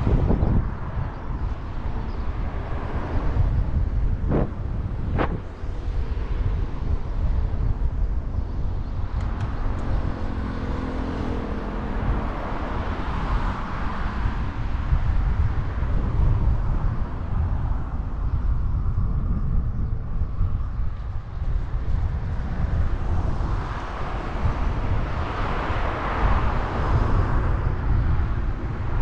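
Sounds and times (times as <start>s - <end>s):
steady low rumble: 0.0s - 29.0s
vehicle passing: 1.7s - 6.9s, 9.4s - 15.2s.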